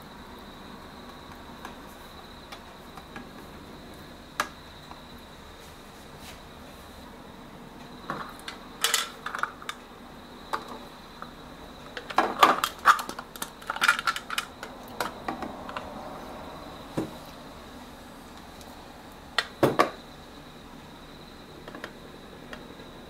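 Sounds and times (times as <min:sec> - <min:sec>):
kitchenware clicking and clattering: 0:08.1 - 0:09.8.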